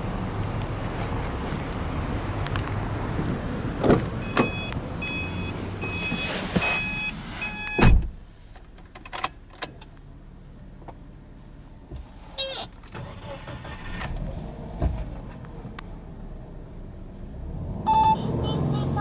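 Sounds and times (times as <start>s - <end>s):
door warning chime beeping: 4.2s - 7.9s, 17.9s - 19.0s
car door shutting: 5.9s - 8.2s.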